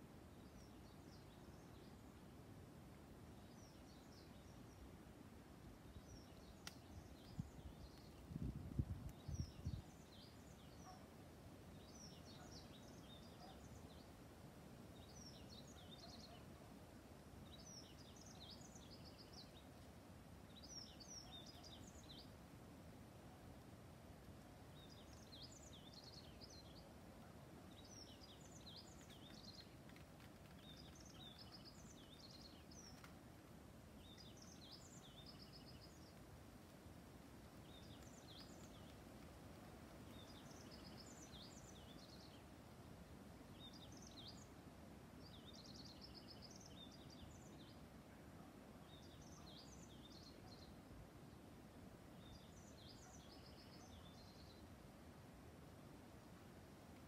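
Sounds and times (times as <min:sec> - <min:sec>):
songbird twittering: 0:40.1 - 0:42.4.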